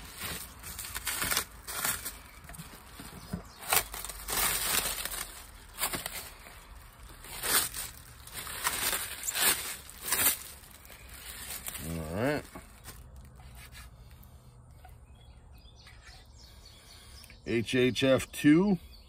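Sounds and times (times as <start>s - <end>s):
cellophane wrap crinkling: 0.0s - 14.2s.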